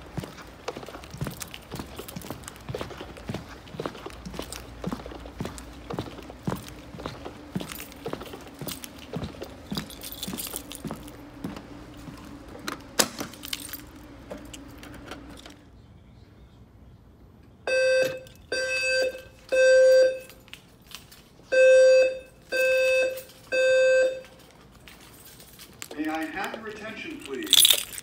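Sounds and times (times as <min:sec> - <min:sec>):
footsteps with light clicks: 0:00.0 - 0:15.6, 0:19.0 - 0:21.5, 0:22.5 - 0:28.0
fire alarm evacuation tone: 0:17.7 - 0:20.4, 0:21.5 - 0:25.0.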